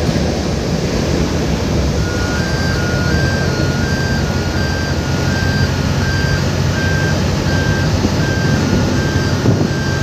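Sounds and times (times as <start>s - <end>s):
jet engines rumbling: 0.0s - 10.0s
high electronic alarm beeps: 2.0s - 10.0s.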